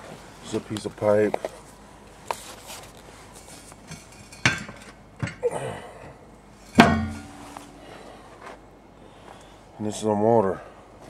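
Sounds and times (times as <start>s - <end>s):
metal knocks on steel pipe: 6.8s - 7.8s
ringing metal clank: 6.8s - 7.9s.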